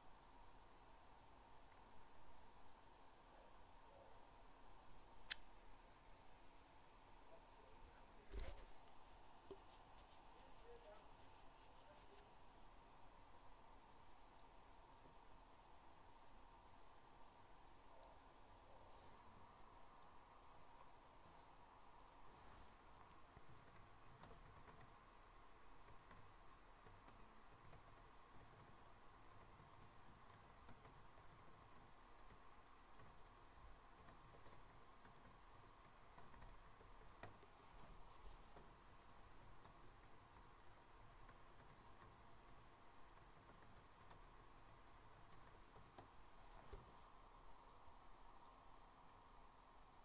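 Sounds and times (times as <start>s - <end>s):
keyboard keys clicking: 23.4s - 25.0s, 25.8s - 32.4s, 33.0s - 37.5s, 39.4s - 46.1s.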